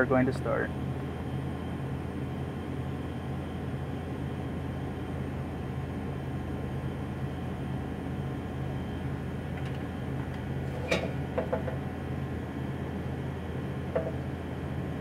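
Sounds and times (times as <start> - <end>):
fan motor humming: 0.0 - 15.0.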